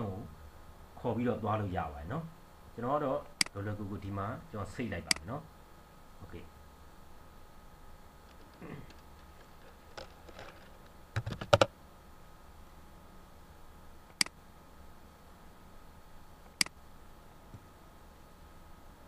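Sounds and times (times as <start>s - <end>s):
computer keyboard typing: 11.2s - 11.7s
mouse clicks: 14.1s - 14.4s.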